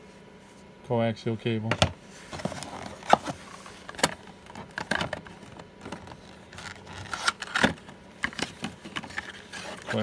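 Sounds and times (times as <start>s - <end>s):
cardboard rustling and scraping: 2.1s - 10.0s.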